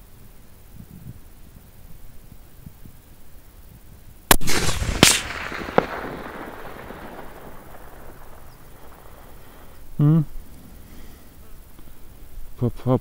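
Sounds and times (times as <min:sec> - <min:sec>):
rifle shot: 0:04.3 - 0:09.8
loud crack: 0:04.3 - 0:09.9.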